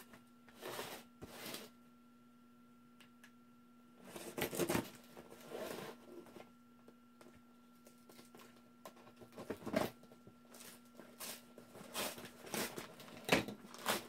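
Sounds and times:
tape and cardboard rustling: 4.0s - 6.5s, 7.8s - 14.0s
knife slitting packing tape: 13.7s - 14.0s.

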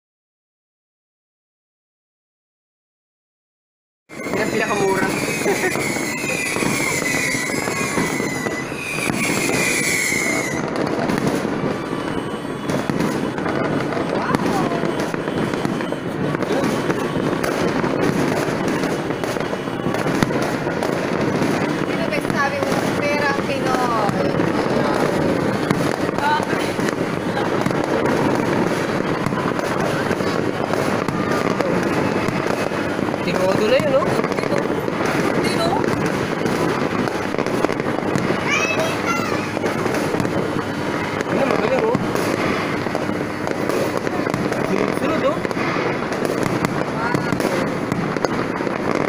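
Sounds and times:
firework whistles sliding down: 4.1s - 17.1s
fireworks crackling: 4.1s - 49.0s.

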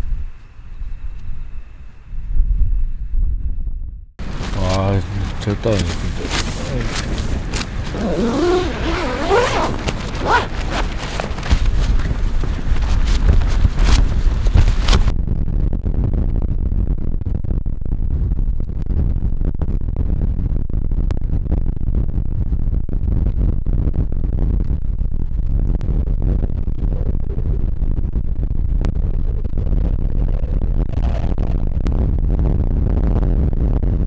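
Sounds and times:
wind buffeting microphone: 0.0s - 34.0s.

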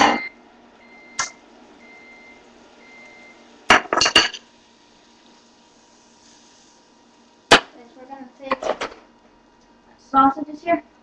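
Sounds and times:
dishes clattering: 3.7s - 4.4s, 8.5s - 9.0s.

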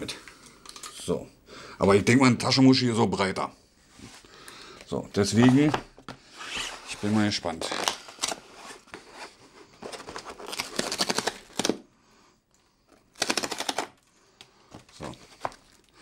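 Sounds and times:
cardboard tear strip ripping: 10.4s - 11.8s.

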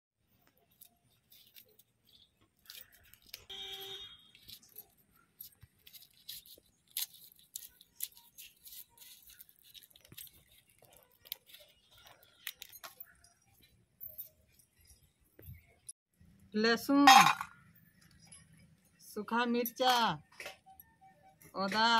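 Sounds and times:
garlic skins crackling: 0.4s - 13.3s.

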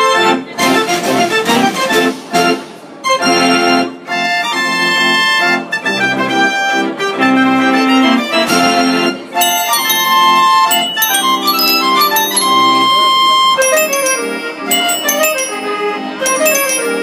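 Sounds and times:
fair organ playing a tune: 9.4s - 17.0s.

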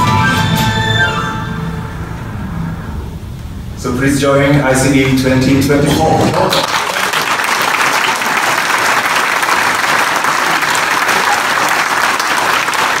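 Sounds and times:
audience applauding: 6.3s - 13.0s.

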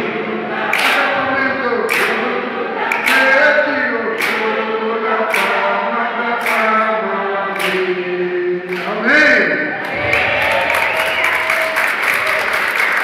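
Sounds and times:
group singing a hymn: 0.0s - 10.4s
hand claps: 0.7s - 1.2s, 1.9s - 3.4s, 4.1s - 4.6s, 5.3s - 5.7s, 6.4s - 6.9s, 7.6s - 7.9s, 8.7s - 9.0s, 9.9s - 13.0s.

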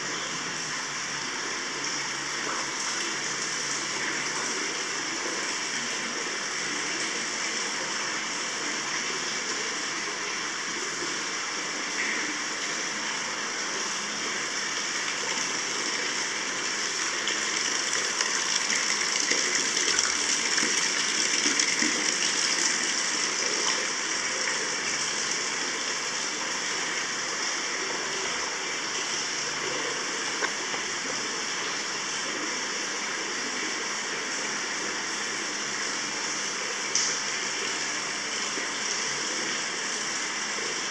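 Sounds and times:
water pouring into a bath: 0.0s - 40.9s.

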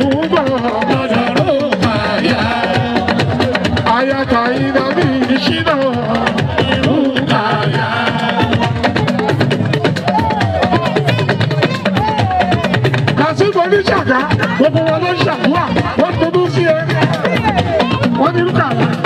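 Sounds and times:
person singing: 0.0s - 12.8s
hand drums and percussion: 0.0s - 19.0s.

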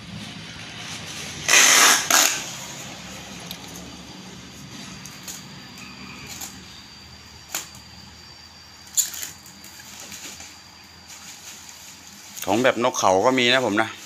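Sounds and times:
packing tape dispenser clicks: 1.5s - 2.4s.

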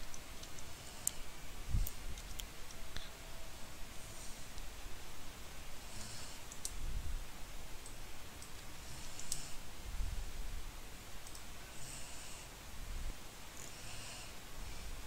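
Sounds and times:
keyboard and mouse clicks: 6.5s - 6.8s, 7.8s - 9.5s, 11.2s - 11.5s.

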